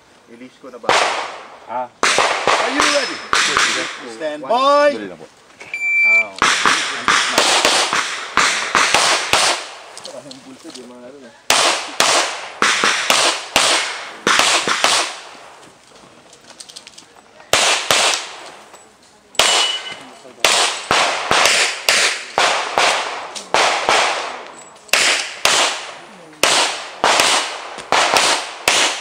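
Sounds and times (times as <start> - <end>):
pistol shots: 0.9 - 4.1, 6.4 - 9.8, 11.5 - 15.4, 17.5 - 18.6, 19.4 - 29.0.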